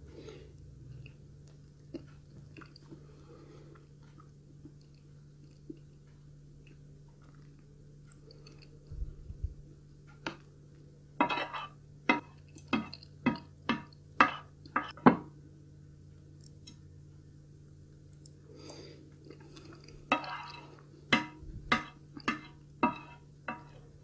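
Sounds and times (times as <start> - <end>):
low steady hum: 0.0 - 24.0
dull low thumps: 8.9 - 9.7, 21.4 - 21.7
spoon scraping a plate: 11.2 - 12.9, 20.1 - 24.0.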